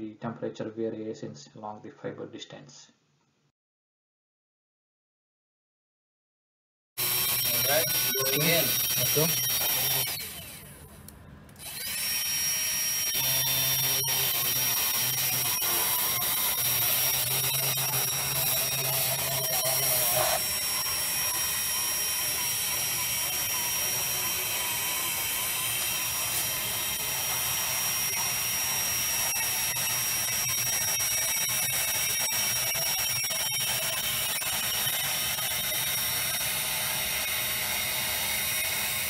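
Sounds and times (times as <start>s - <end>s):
high-pitched motor whine: 7.0s - 10.7s, 11.6s - 39.0s.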